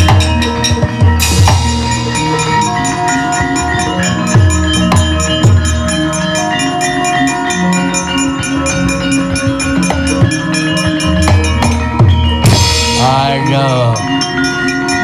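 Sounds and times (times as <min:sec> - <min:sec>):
ringing metallophone notes: 0:00.0 - 0:15.0.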